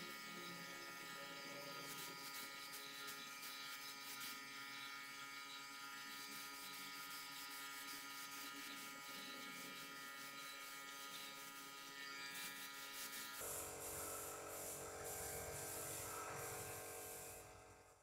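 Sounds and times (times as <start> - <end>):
paint spray gun hissing: 13.0 - 18.0
air compressor humming: 13.4 - 18.0.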